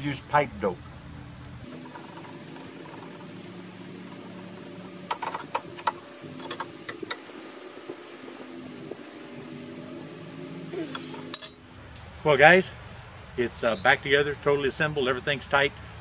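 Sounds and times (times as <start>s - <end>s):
wrench metal clicks and clinks: 11.2s - 12.1s.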